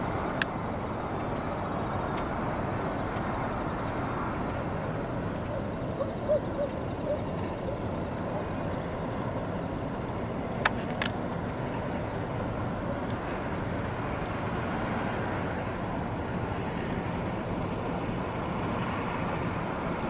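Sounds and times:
small birds chirping: 2.1s - 8.9s, 9.6s - 17.2s
low loud bird calls: 2.4s - 8.5s.

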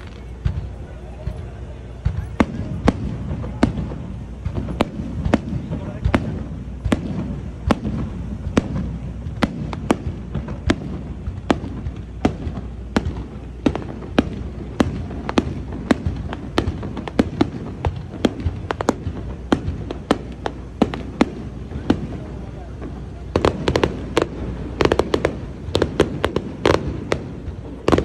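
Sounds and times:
fireworks bangs: 0.0s - 28.0s
low background noise: 0.0s - 28.0s.

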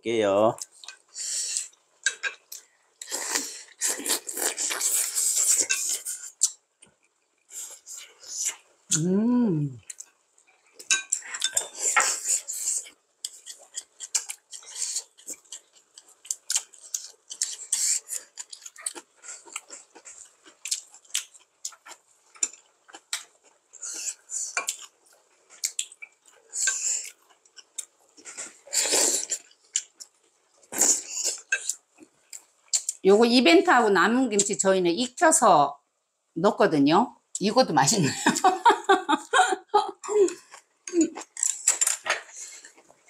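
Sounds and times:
slurping broth: 3.0s - 6.5s, 28.6s - 29.5s
chewing: 9.8s - 33.0s, 40.2s - 43.0s.

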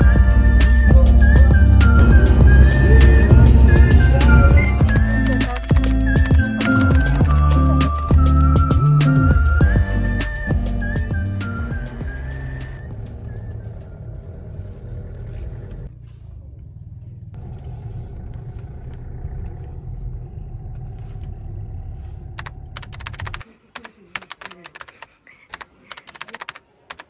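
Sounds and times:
car driving rumble from inside: 0.0s - 7.7s, 11.7s - 23.4s
sharp clicks and rattles: 22.4s - 23.4s.

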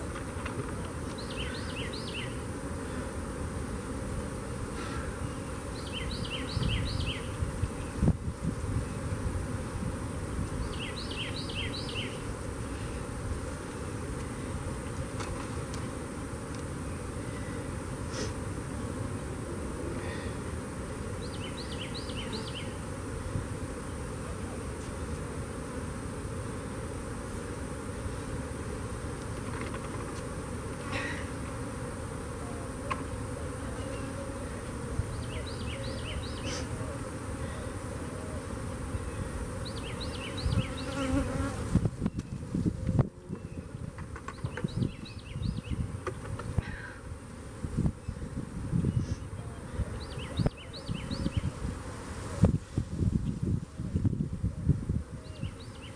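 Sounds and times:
honeybees buzzing: 0.0s - 55.9s
bird chirping: 5.3s - 7.3s, 10.6s - 12.2s, 21.2s - 22.8s, 35.1s - 36.6s, 50.0s - 51.5s.

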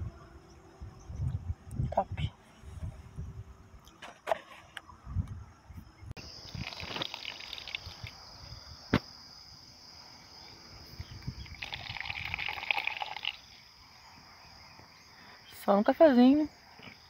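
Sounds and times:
insects chirring: 3.2s - 17.0s
rustling and splashing: 6.4s - 8.2s.

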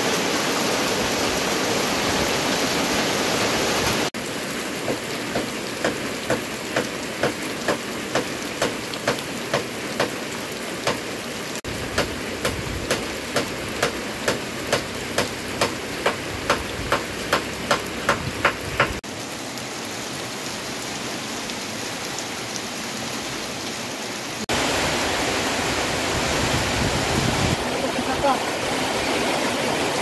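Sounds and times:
steady rain hiss: 0.0s - 30.0s
water dripping from roof edge: 4.2s - 19.8s.

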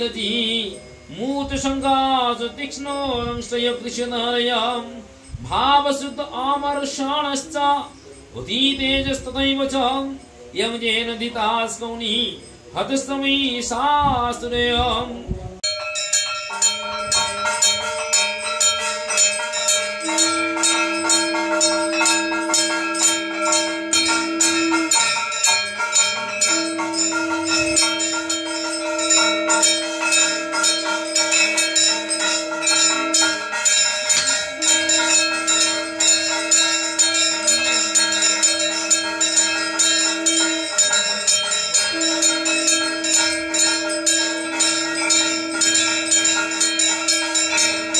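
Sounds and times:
bells ringing fast: 15.6s - 47.9s
conch shell blown: 15.6s - 47.9s.

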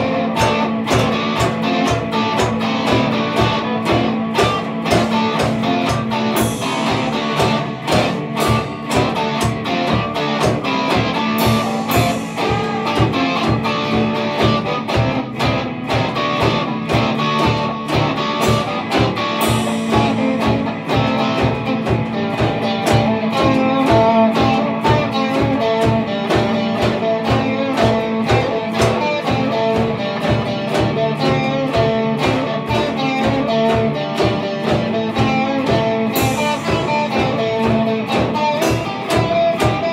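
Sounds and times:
drum kit beat: 0.0s - 39.9s
electric guitars: 0.0s - 39.9s
cymbal crashes: 6.3s - 9.4s, 11.2s - 14.2s, 19.4s - 21.4s.

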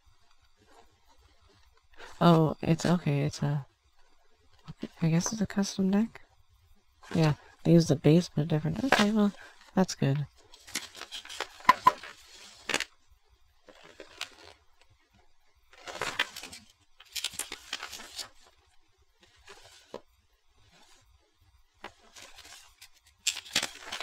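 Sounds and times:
paper pages rustling: 8.6s - 9.8s, 10.4s - 12.9s, 13.6s - 15.0s, 15.7s - 21.0s, 21.8s - 24.0s.

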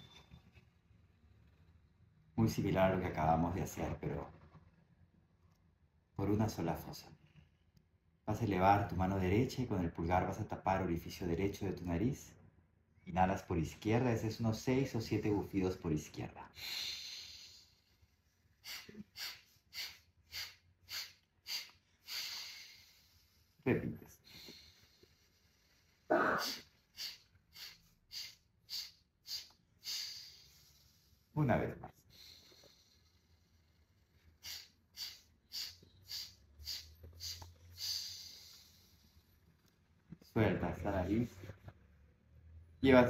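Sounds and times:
man's forceful nostril breaths: 16.6s - 23.6s, 24.2s - 31.4s, 32.0s - 39.6s.

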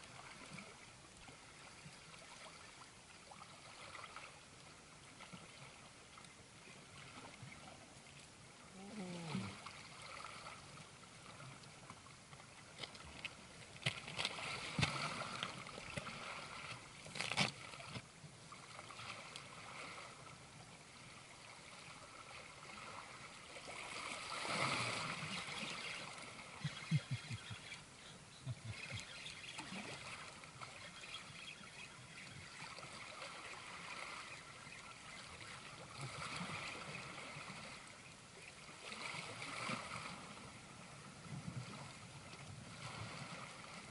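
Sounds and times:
water lapping against rocks: 8.6s - 18.0s, 22.0s - 37.9s.

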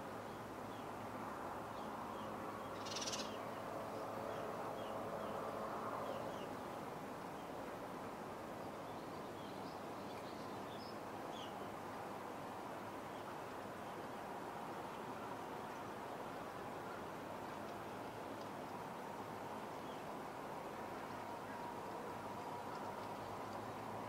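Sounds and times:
outdoor background noise: 0.0s - 24.0s
faint bird chirps: 2.7s - 3.4s.

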